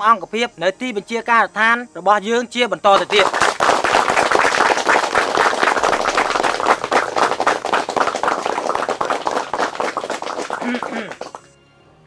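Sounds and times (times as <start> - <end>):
crowd applauding: 2.9 - 11.6.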